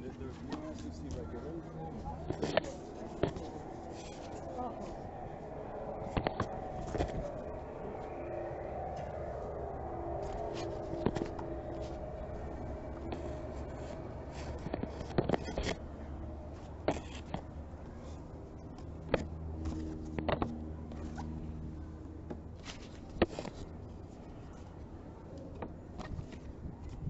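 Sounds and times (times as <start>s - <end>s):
street traffic hum: 0.0s - 27.0s
canvas paintings being handled: 0.3s - 9.5s, 10.2s - 15.8s, 22.3s - 27.0s.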